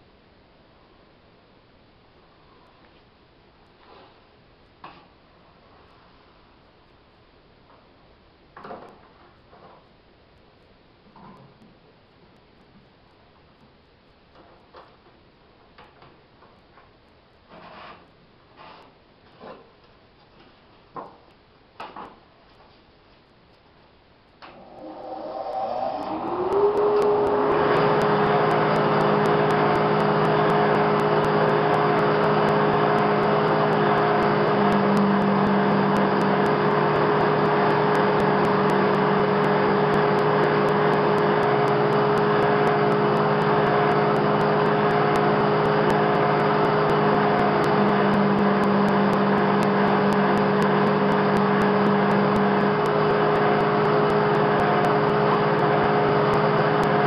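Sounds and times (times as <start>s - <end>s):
drum sander whining and humming: 24.5s - 57.0s.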